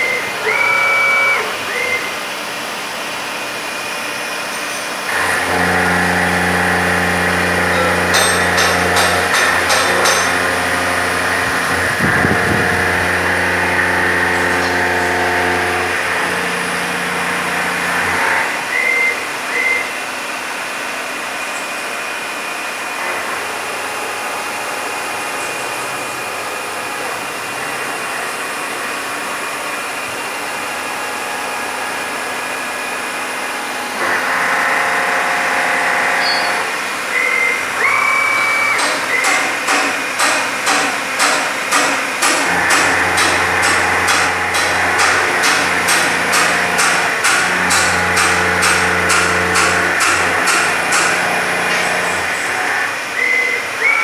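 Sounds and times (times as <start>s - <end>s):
short high squeals: 0.0s - 2.2s, 36.2s - 39.3s
milling machine cutting metal: 0.0s - 19.8s, 20.7s - 54.0s
machine hum: 0.0s - 53.9s.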